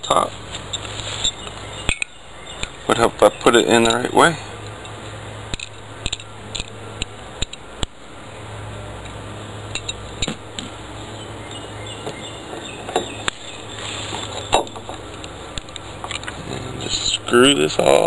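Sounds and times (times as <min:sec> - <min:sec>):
sharp metallic clicks and clinks: 0:00.0 - 0:02.8, 0:03.8 - 0:07.9, 0:09.7 - 0:10.3
steady low hum: 0:00.0 - 0:18.0.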